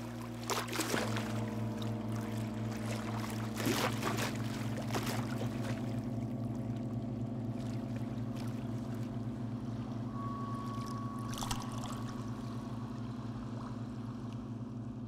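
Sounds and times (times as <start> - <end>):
boat engine drone: 0.0 - 15.0
high pure tone: 9.2 - 14.1.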